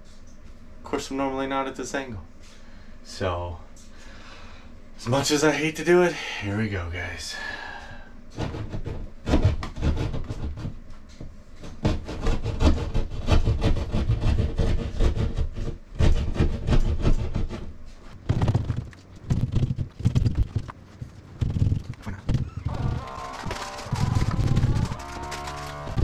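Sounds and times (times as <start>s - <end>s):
hand saw cutting drywall: 8.4s - 10.8s, 11.6s - 17.8s.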